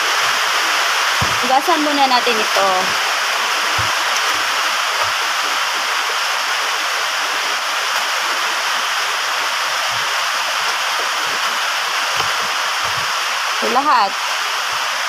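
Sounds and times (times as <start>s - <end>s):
rain on a metal roof: 0.0s - 15.0s.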